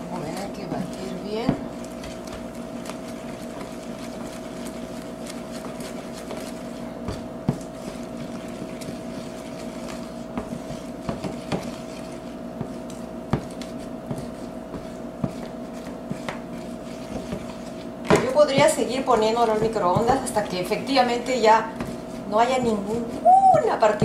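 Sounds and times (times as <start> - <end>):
steady hum: 0.0 - 24.0
wooden spoon stirring in plastic bowl: 0.1 - 24.0
spoon knocking and scraping bowl: 5.5 - 20.4.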